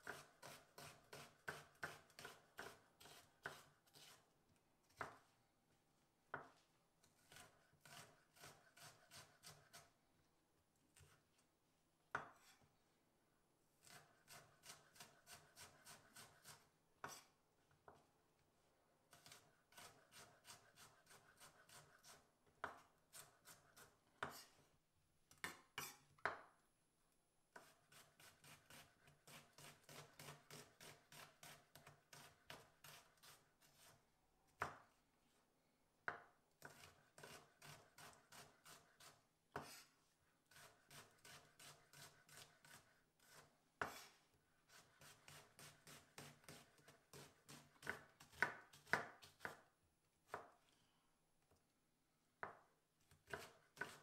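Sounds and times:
knife slicing on wooden board: 0:07.2 - 0:09.8, 0:13.8 - 0:17.3, 0:36.6 - 0:39.9, 0:40.5 - 0:49.6, 0:53.3 - 0:54.0.

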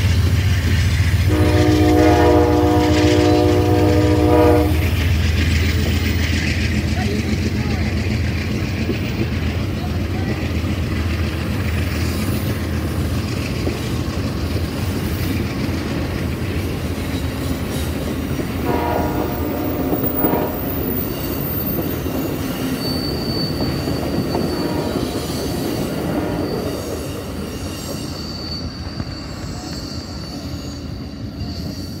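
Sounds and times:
train wheels rumbling on rail: 0:00.0 - 0:32.0
train horn: 0:01.3 - 0:05.0, 0:18.6 - 0:21.1, 0:24.2 - 0:26.8
high wheel squeal: 0:10.4 - 0:32.0.

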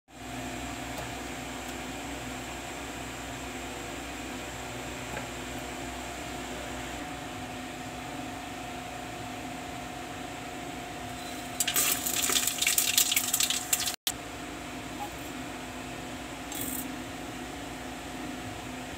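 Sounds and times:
spices sizzling in hot oil: 0:11.2 - 0:14.0.

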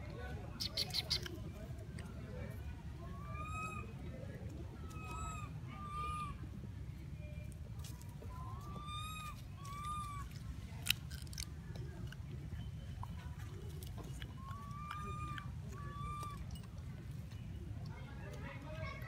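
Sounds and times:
monkey coo calls: 0:03.1 - 0:04.0, 0:04.8 - 0:06.4, 0:08.3 - 0:10.4, 0:14.0 - 0:16.8.

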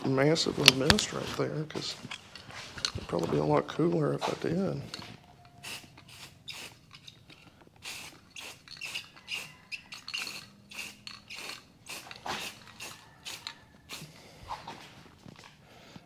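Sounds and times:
aerosol spray can hissing bursts: 0:05.6 - 0:07.1, 0:07.8 - 0:14.2.

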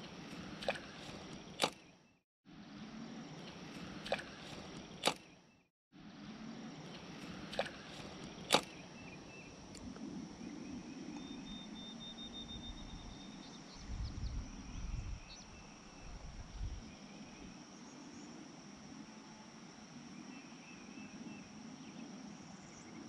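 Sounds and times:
faint high insect hum: 0:00.0 - 0:23.0
fishing rod cast swish: 0:00.4 - 0:01.8, 0:03.8 - 0:05.3, 0:07.5 - 0:08.8.

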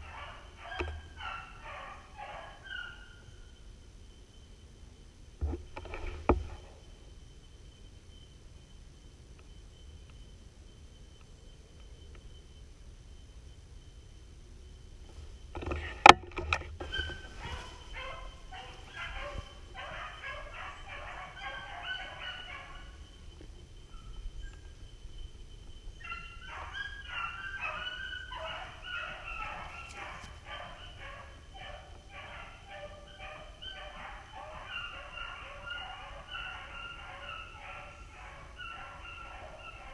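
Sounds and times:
dogs baying and yelping: 0:00.0 - 0:03.3, 0:15.6 - 0:24.7, 0:25.8 - 0:39.9.

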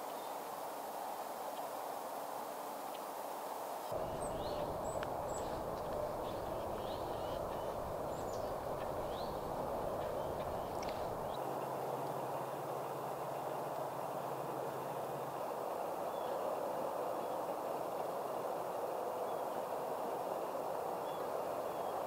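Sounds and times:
low rumble: 0:03.9 - 0:11.3
distant hum: 0:03.9 - 0:11.4
small birds chirping: 0:03.9 - 0:11.4.

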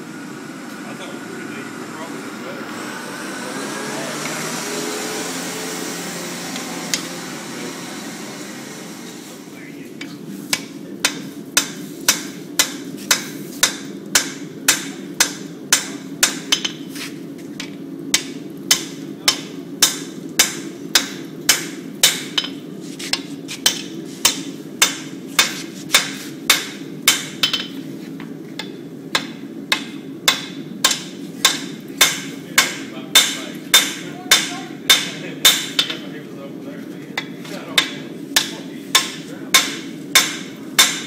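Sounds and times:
steady low hum: 0:00.0 - 0:41.0
hammer striking steel on anvil: 0:10.5 - 0:16.9, 0:18.1 - 0:27.8, 0:28.6 - 0:36.0, 0:37.2 - 0:41.0.

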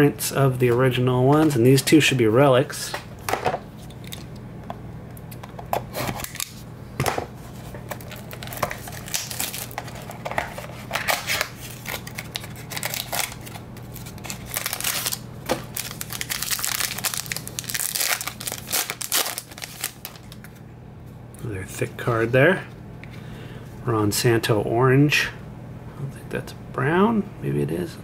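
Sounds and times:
foil pack crinkling: 0:07.6 - 0:20.6
plastic shrink wrap tearing: 0:08.0 - 0:20.6.

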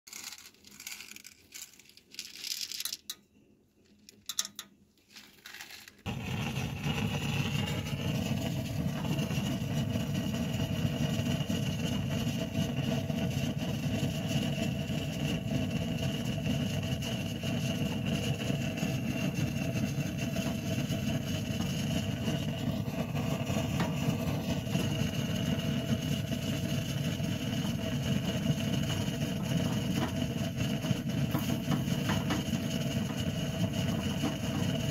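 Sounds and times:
popcorn kernels rattling in a can: 0:00.1 - 0:03.2, 0:03.8 - 0:34.9
gas torch flame rushing: 0:06.0 - 0:34.9.

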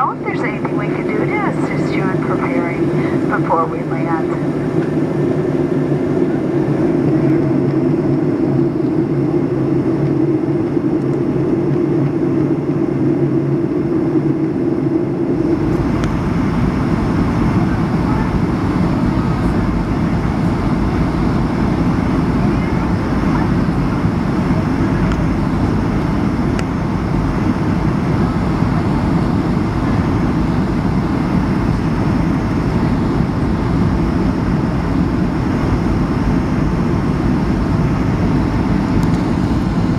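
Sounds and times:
jet engine cabin hum: 0:00.0 - 0:39.9
rough engine and wind rumble: 0:00.0 - 0:39.9.

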